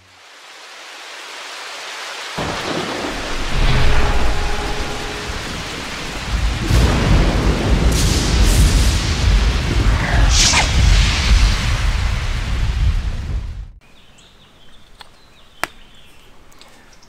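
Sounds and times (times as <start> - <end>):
rain downpour: 0.0 - 10.3
thunder rumbles: 2.4 - 13.8.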